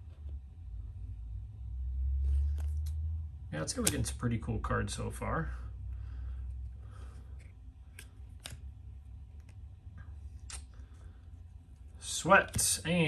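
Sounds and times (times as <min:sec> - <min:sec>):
steady low hum: 0:00.0 - 0:13.0
trading cards clicking: 0:03.7 - 0:04.2, 0:07.3 - 0:09.6, 0:10.4 - 0:10.8, 0:12.4 - 0:12.9.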